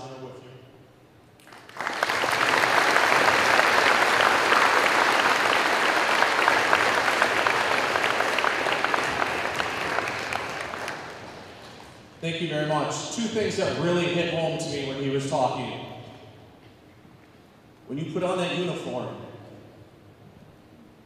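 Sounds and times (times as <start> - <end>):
audience clapping: 1.4 - 12.1.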